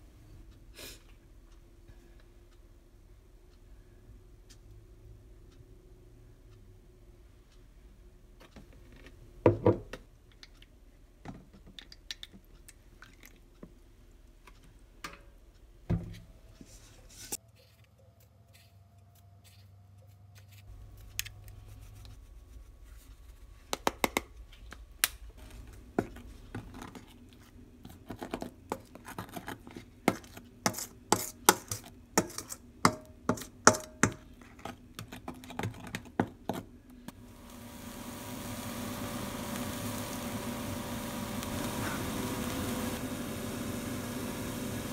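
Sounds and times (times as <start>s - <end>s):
spoon scraping metal bowl: 26.6s - 36.6s.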